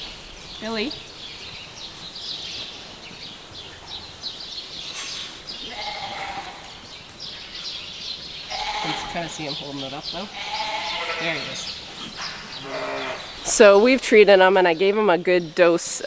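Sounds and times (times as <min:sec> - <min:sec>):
sheep bleating: 0:05.6 - 0:06.8, 0:08.5 - 0:09.5, 0:10.3 - 0:11.7, 0:12.6 - 0:13.3.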